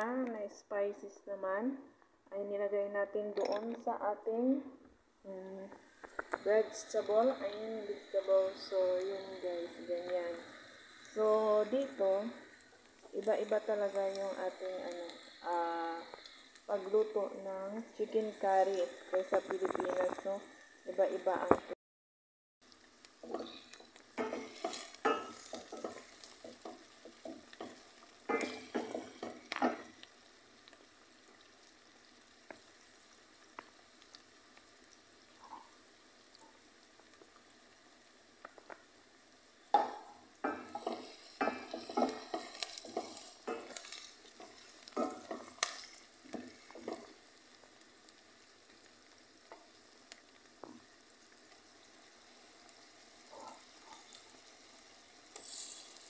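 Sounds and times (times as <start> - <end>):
faint frying sizzle: 0.0 - 21.8, 22.6 - 56.0
wooden spoon scraping a pot: 23.2 - 29.9, 39.8 - 47.2, 55.3 - 56.0.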